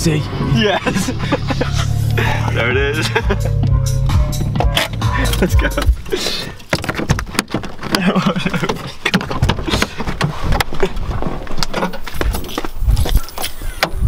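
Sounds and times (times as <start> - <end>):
car door opening: 1.4 - 14.0.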